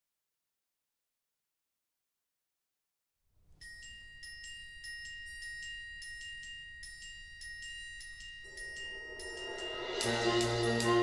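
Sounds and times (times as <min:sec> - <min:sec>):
orchestra bells ringing notes: 0:03.6 - 0:11.0.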